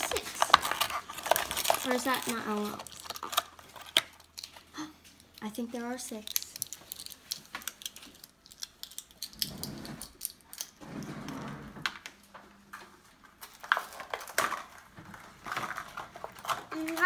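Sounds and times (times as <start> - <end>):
packaging rustling: 0.0 - 10.7, 13.2 - 17.0
plastic toy pieces clicking: 0.0 - 10.8, 15.5 - 17.0.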